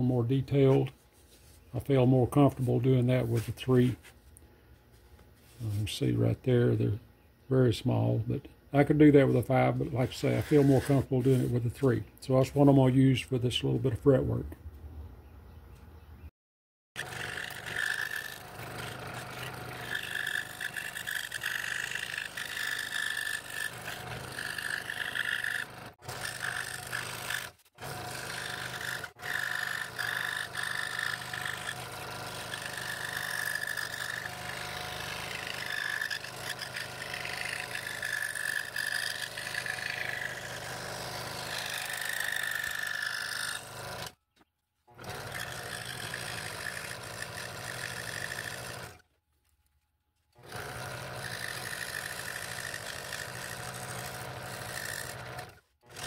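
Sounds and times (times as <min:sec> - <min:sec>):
scroll saw motor hum: 0:09.2 - 0:11.9, 0:17.0 - 0:44.2, 0:44.9 - 0:49.0, 0:50.3 - 0:56.0
saw blade rasping wood: 0:09.8 - 0:11.7, 0:17.0 - 0:44.2, 0:44.9 - 0:49.0, 0:50.4 - 0:56.0.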